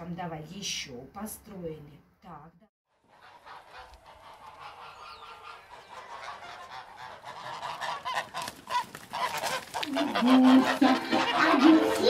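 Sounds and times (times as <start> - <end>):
geese honking: 2.9 - 12.0.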